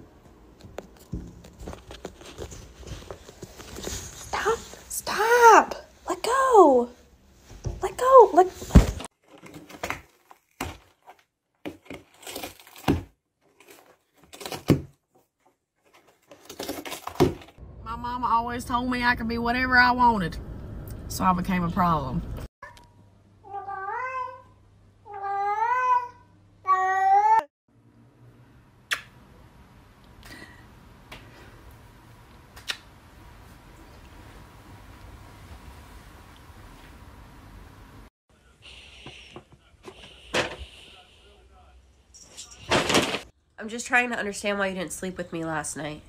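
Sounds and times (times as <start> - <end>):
cat meowing: 23.5 - 24.5.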